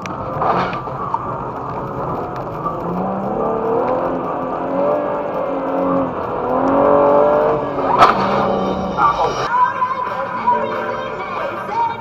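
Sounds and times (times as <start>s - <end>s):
car engine accelerating through gears: 0.0s - 9.5s.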